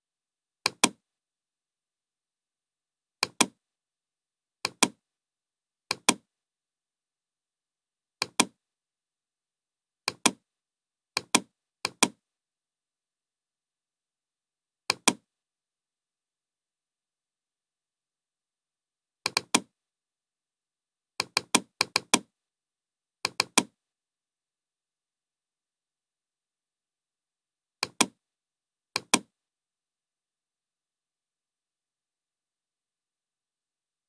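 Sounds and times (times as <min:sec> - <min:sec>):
mouse button clicking: 0:00.7 - 0:01.0, 0:03.2 - 0:03.6, 0:04.7 - 0:05.0, 0:05.9 - 0:06.2, 0:08.2 - 0:08.6, 0:10.1 - 0:10.4, 0:11.2 - 0:12.2, 0:14.9 - 0:15.2, 0:19.3 - 0:19.7, 0:23.3 - 0:23.7, 0:27.8 - 0:28.2, 0:29.0 - 0:29.3.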